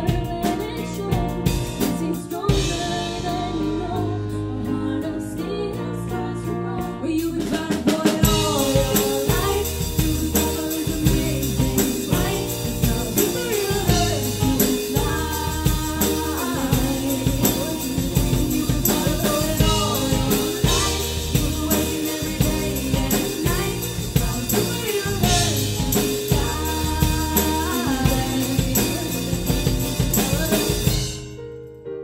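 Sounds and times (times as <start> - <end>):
drum kit steady beat: 0.0 - 4.0, 7.2 - 31.4
women singing: 0.0 - 31.0
electric bass: 0.0 - 31.2
keyboard: 0.0 - 32.0.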